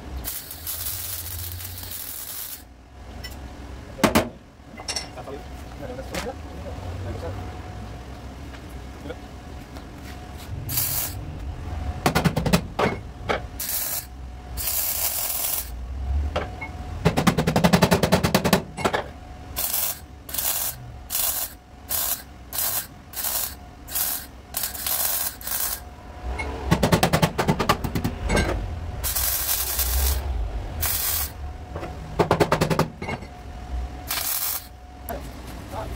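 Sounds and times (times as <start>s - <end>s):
welder crackling: 0.2s - 2.7s, 10.7s - 11.2s, 13.6s - 15.8s, 19.6s - 25.8s, 29.0s - 31.4s, 34.1s - 34.8s.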